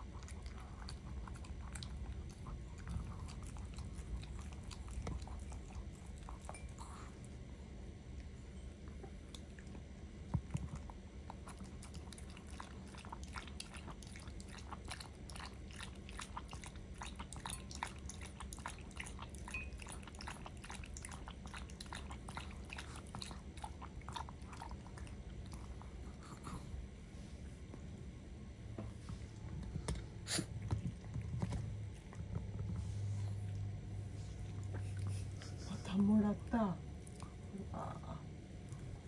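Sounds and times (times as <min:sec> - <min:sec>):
dog lapping water: 0:11.3 - 0:25.9.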